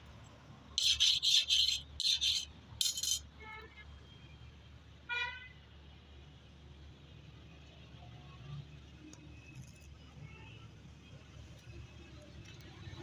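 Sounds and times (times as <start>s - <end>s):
high-pitched metal squeaks: 0.8s - 3.2s
metal scraping on anvil: 0.8s - 3.2s.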